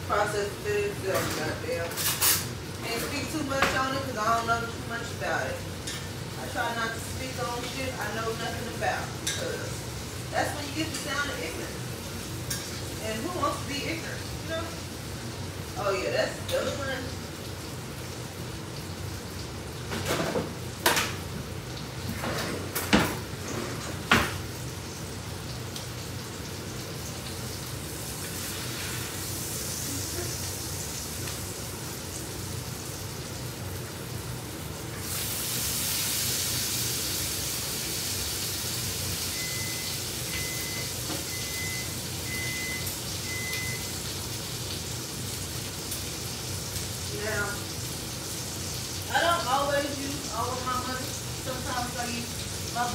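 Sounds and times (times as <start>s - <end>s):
food sizzling in a frying pan: 0.0s - 52.9s
appliance electronic beeps: 39.2s - 44.0s.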